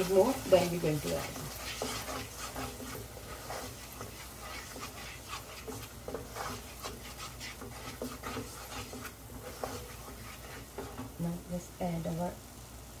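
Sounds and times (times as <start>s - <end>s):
wooden spatula scraping a pan: 0.0s - 12.2s.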